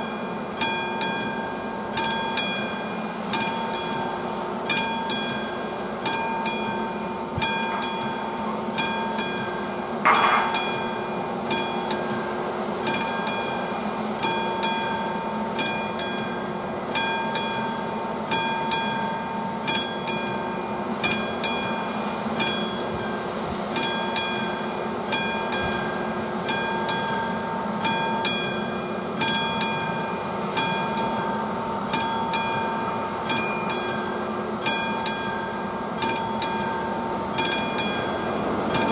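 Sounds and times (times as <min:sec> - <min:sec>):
level crossing warning bell: 0:00.0 - 0:38.9.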